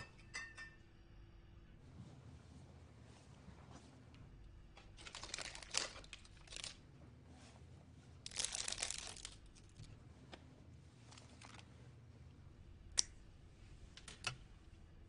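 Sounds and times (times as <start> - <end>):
wrapper crinkling and tearing: 5.0 - 6.8, 8.2 - 9.9, 11.1 - 11.6.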